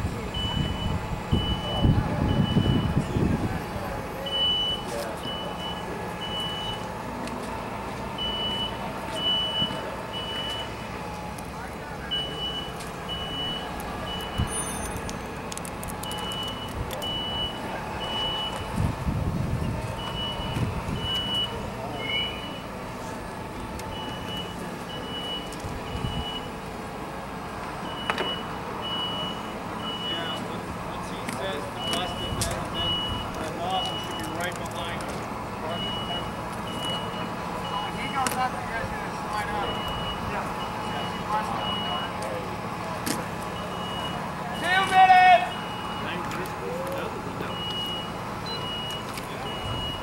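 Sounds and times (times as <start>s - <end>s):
smoke alarm beeping: 31.8s - 34.4s, 35.8s - 38.2s.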